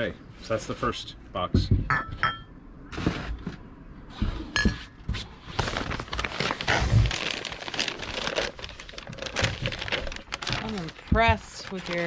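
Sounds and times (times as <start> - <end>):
drinking glasses clinking: 1.9 - 2.5
rustling and crinkling: 2.9 - 12.0.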